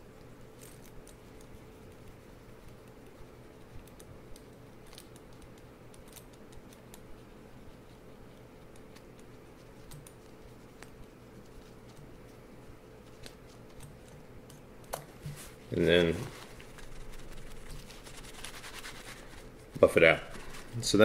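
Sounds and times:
gloved hands rubbing metal: 15.2s - 21.0s.

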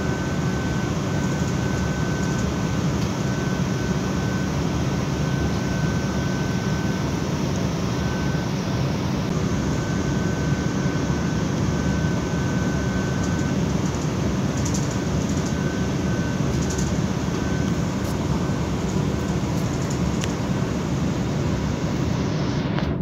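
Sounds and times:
faint high whine: 0.0s - 23.0s.

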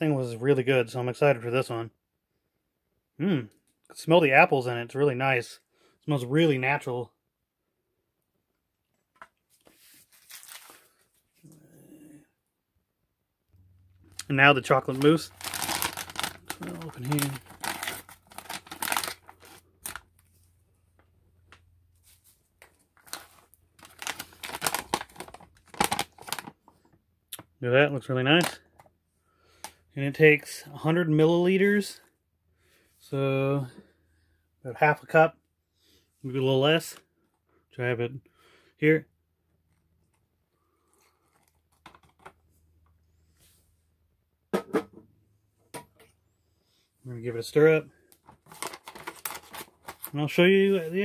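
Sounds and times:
foil pouch crinkling: 14.2s - 20.1s, 23.0s - 26.6s, 48.4s - 50.9s.

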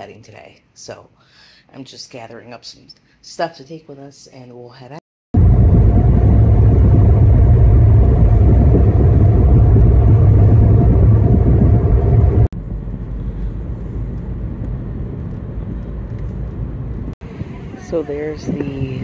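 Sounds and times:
car road and wind noise: 5.4s - 19.0s.

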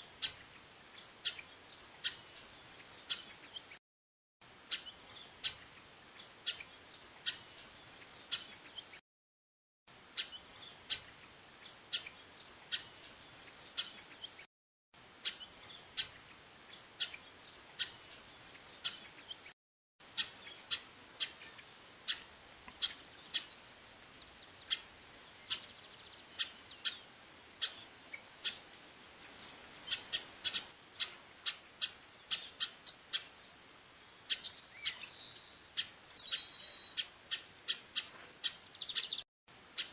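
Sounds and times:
high insect trill: 9.9s - 14.1s, 20.0s - 39.9s
bird call notes: 34.3s - 39.2s.

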